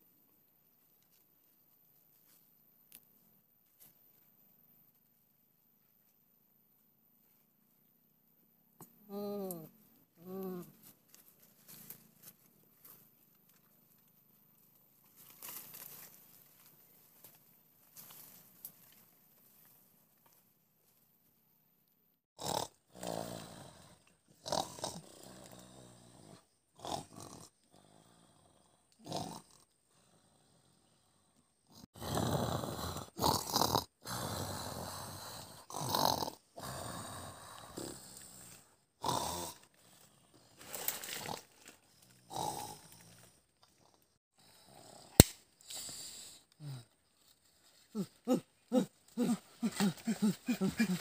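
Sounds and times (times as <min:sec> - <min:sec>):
person snoring: 0:09.1 - 0:10.7, 0:22.4 - 0:43.4, 0:44.4 - 0:47.0, 0:47.9 - 0:51.0
sharp click: 0:45.2 - 0:45.4.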